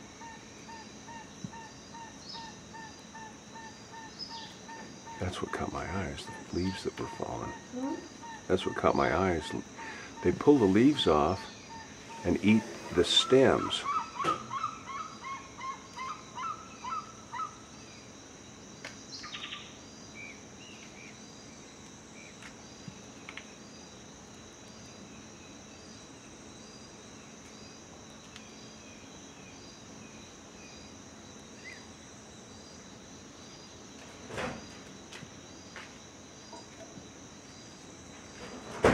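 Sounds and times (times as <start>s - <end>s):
high insect drone: 0.0s - 38.9s.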